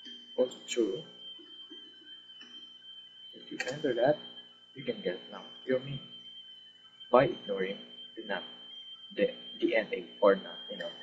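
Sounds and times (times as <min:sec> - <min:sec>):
high-pitched whine: 0:00.0 - 0:11.0
soft low tones: 0:03.4 - 0:06.1, 0:07.1 - 0:08.5, 0:09.1 - 0:11.0.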